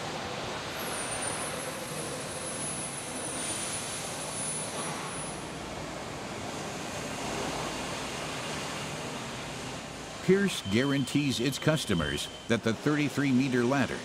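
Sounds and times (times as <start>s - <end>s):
faint high whine: 7.3s - 14.0s.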